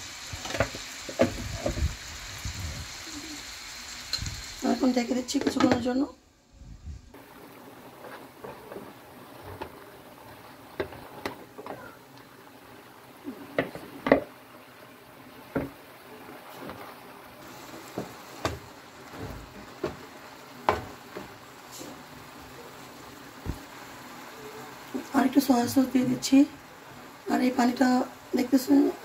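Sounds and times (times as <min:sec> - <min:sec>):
liquid simmering in pan: 0:07.1 - 0:29.0
spatula scraping frying pan: 0:07.8 - 0:11.8.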